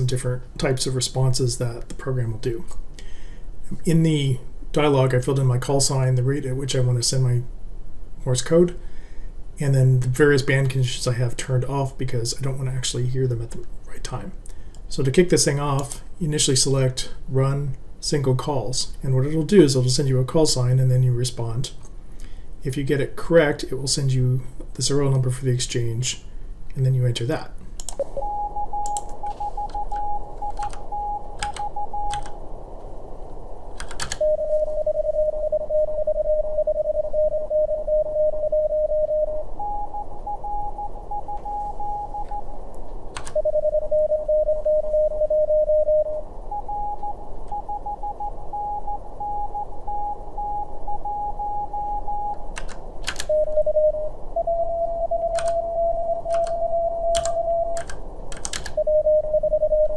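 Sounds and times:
receiver hiss: 0.0 - 59.9
morse code tones: 27.1 - 32.5, 34.1 - 59.9
computer keyboard clicks: 29.9 - 30.8, 33.8 - 34.2, 52.6 - 53.3, 55.3 - 55.6, 56.3 - 58.8.

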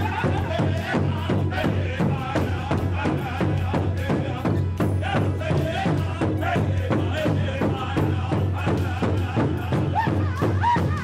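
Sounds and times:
large drum beating: 0.0 - 11.0
voices singing: 0.0 - 11.0.

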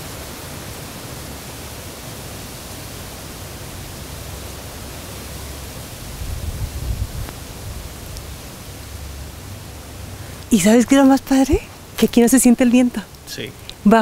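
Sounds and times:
wind gusts rumbling on microphone: 0.0 - 13.6
wind rushing through leaves: 0.0 - 14.0.

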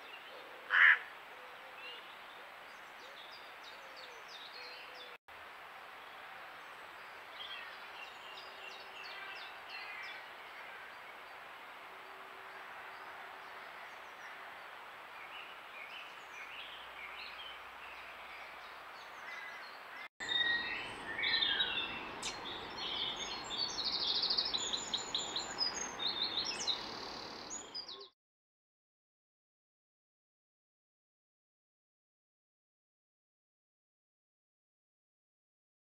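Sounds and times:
songbirds singing: 0.0 - 5.2, 6.0 - 28.2.

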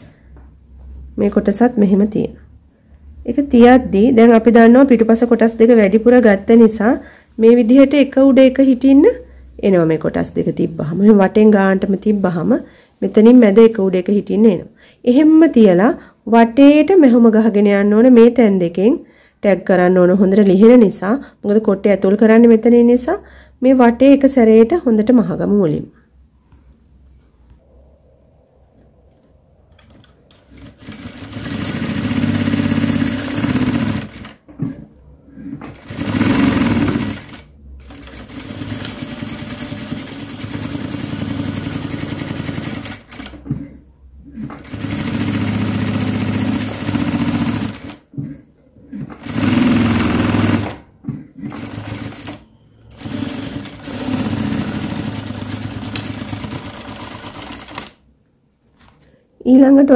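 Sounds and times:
sewing machine stitching: 30.3 - 34.4, 35.5 - 43.7, 44.4 - 48.0, 49.0 - 50.8, 51.4 - 58.0.

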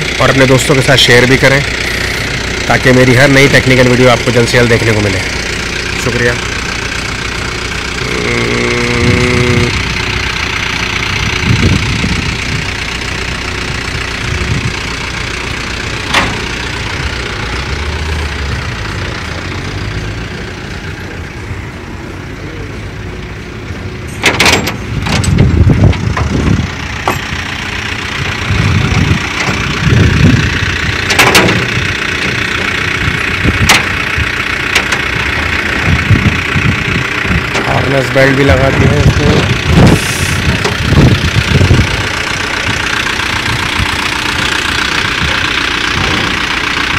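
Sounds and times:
vehicle engine idling: 0.0 - 46.9
sharp metallic clanks: 24.1 - 27.4, 31.0 - 32.8.

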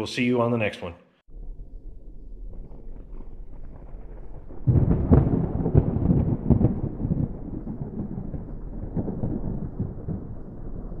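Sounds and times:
thunder rumbling and crackling: 1.3 - 11.0.

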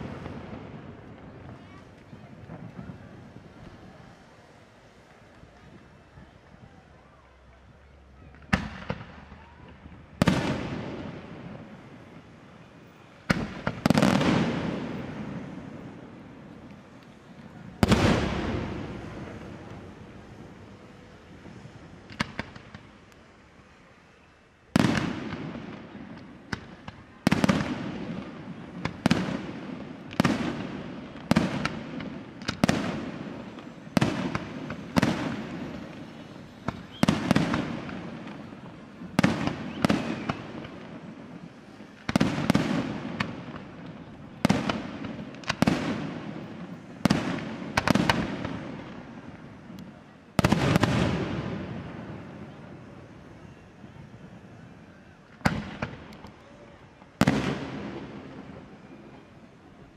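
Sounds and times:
fireworks bangs echoing: 0.0 - 6.6, 8.2 - 23.0, 24.7 - 56.3, 57.0 - 59.5.

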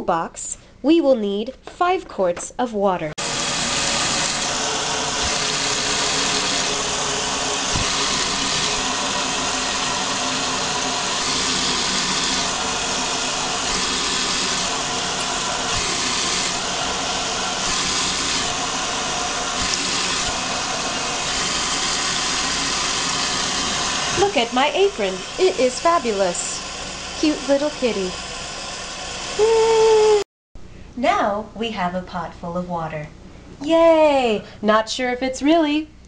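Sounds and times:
faucet running into metal pot: 3.5 - 29.4.

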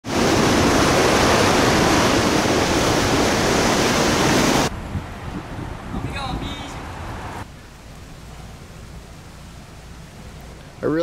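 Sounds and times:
surf breaking against rocks: 0.0 - 4.7.

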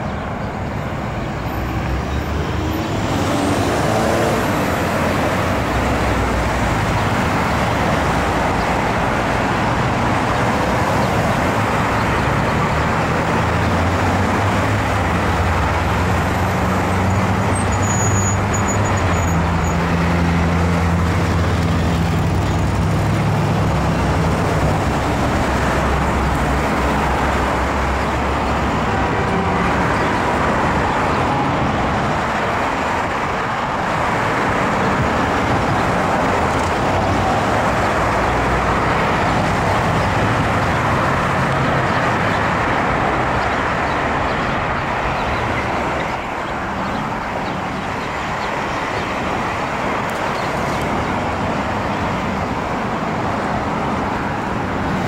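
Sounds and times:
low engine drone of passing vehicle: 0.0 - 55.0
road traffic: 0.0 - 55.0.

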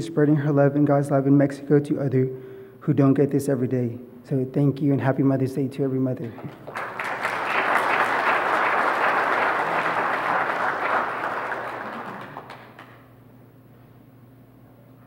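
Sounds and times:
congregation applauding: 6.4 - 13.2.

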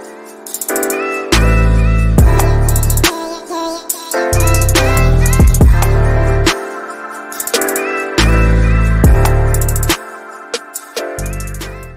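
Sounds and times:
music with bass and drums: 1.4 - 3.2, 4.4 - 6.6, 7.5 - 10.0.

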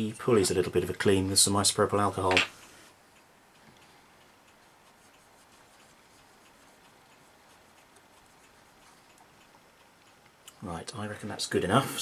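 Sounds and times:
faint small ticks: 2.5 - 11.5
cotton swab rubbing a pulley: 4.4 - 10.2.

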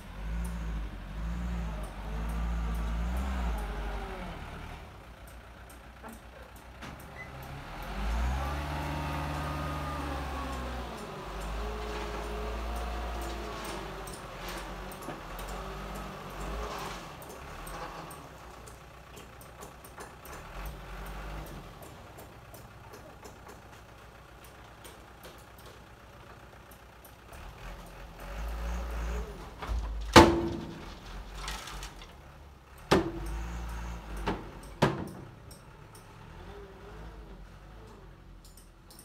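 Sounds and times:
truck engine running low: 0.0 - 38.7
dirt sliding out: 29.0 - 32.4
metal clangs of truck bed: 29.5 - 32.1, 34.2 - 36.1.

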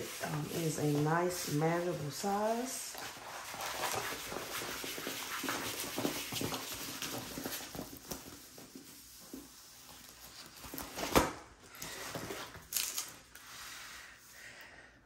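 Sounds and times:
canvas rustling and crinkling: 0.0 - 11.2.

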